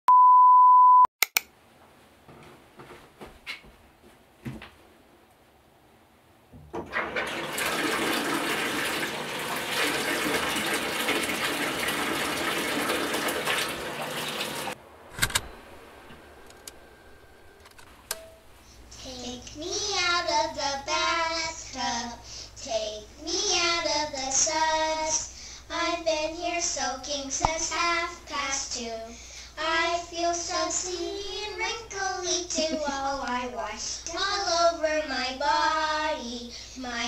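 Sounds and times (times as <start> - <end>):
faucet running water into tub: 6.9 - 14.8.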